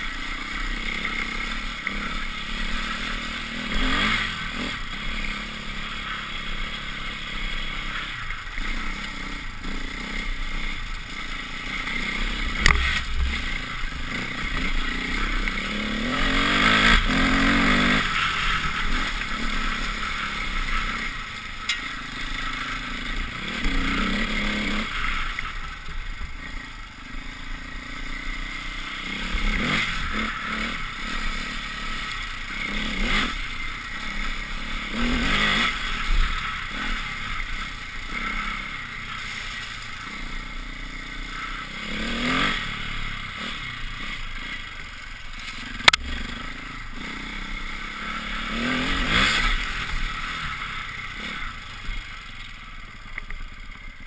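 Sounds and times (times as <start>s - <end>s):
motorcycle engine revving: 0.0s - 54.0s
tyre noise on dirt: 7.6s - 22.8s.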